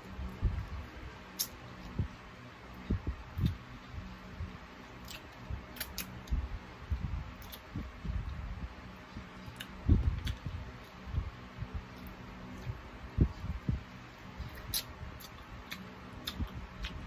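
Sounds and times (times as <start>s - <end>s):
sucking and chewing: 1.3s - 2.0s, 2.8s - 3.7s, 5.0s - 6.4s, 7.3s - 8.4s, 9.3s - 11.0s, 14.4s - 17.0s
wet mouth clicks: 1.4s - 1.6s, 14.5s - 17.0s
soft low thuds: 2.8s - 4.6s, 12.6s - 13.9s.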